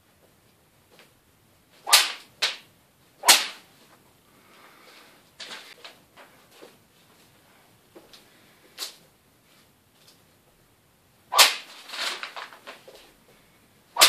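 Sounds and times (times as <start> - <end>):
sword swishing through air: 1.8 - 2.3, 3.2 - 3.7, 11.3 - 11.7.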